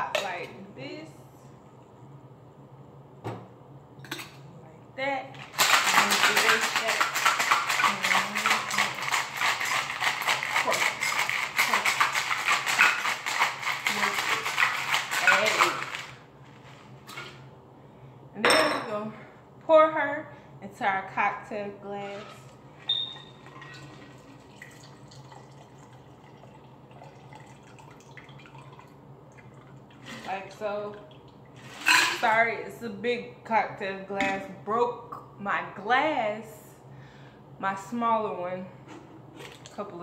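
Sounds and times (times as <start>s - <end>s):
ice rattling in cocktail shaker: 5.4s - 16.2s
liquid trickling into a glass: 22.9s - 30.0s.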